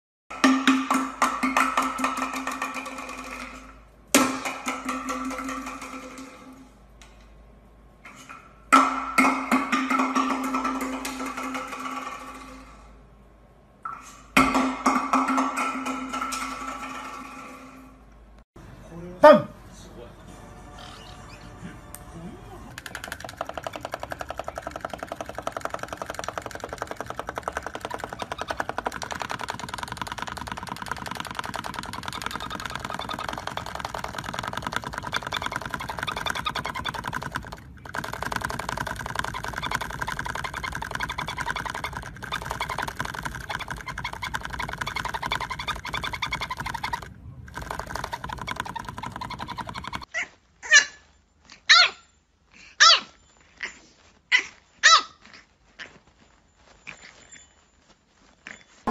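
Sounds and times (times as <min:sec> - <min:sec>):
parrot pulsing chatter: 0:22.4 - 0:51.1
puppy barking: 0:50.1 - 0:51.0, 0:51.7 - 0:52.1, 0:52.8 - 0:55.4.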